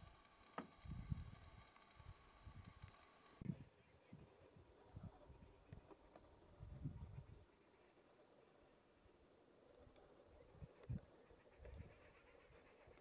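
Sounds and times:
faint high insect drone: 0.0s - 13.0s.

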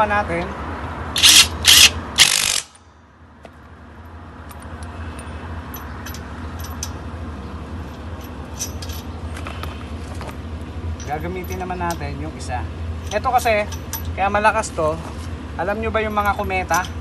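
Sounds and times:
impact wrench hammering: 1.2s - 2.8s.

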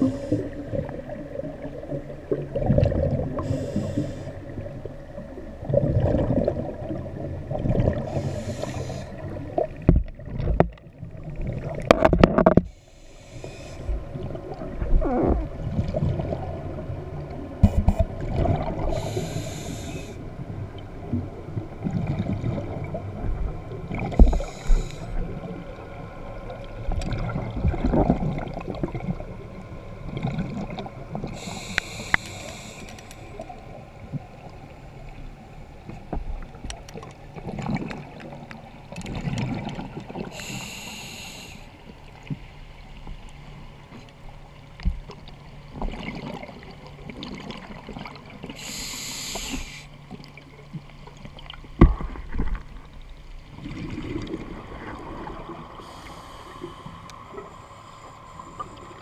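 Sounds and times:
regulator bubbles hissing underwater: 0.0s - 10.4s, 12.5s - 35.1s, 39.2s - 42.2s, 45.8s - 50.4s, 53.5s - 59.0s
low underwater rumbling: 0.0s - 41.0s, 41.7s - 59.0s.

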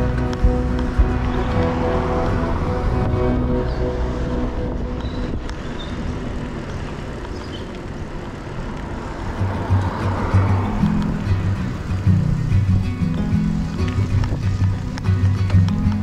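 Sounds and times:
background music: 0.0s - 5.7s
outdoor noise rushing: 0.0s - 16.0s.

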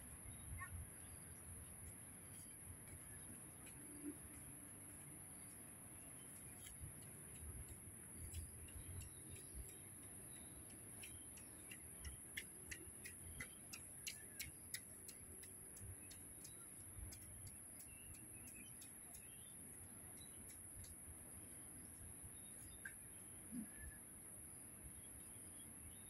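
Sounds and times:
faint sharp ticks: 20.1s - 21.1s.

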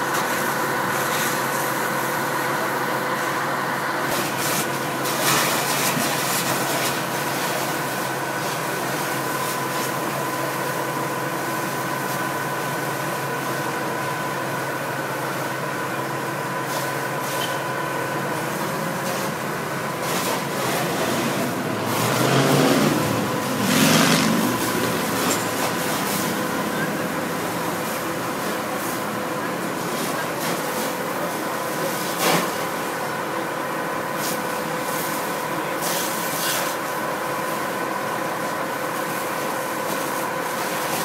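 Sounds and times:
engine or pump droning: 0.0s - 32.0s
fire hoses spraying water: 0.0s - 41.0s.

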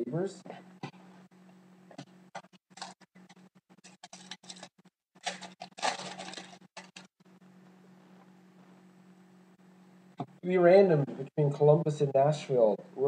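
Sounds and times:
foil wrapper crinkling: 2.4s - 7.1s
cards clicking and rustling: 3.8s - 7.1s.

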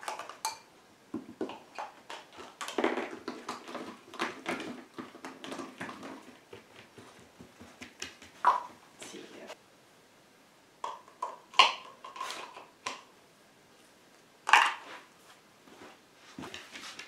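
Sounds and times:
plastic cups tapping on carpet: 0.0s - 8.9s, 10.8s - 13.1s.

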